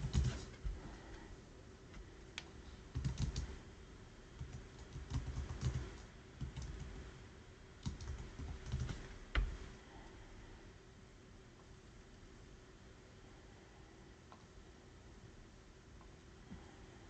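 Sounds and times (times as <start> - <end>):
computer keyboard typing: 0.0 - 0.6, 2.9 - 3.6, 4.4 - 7.0, 7.8 - 9.6.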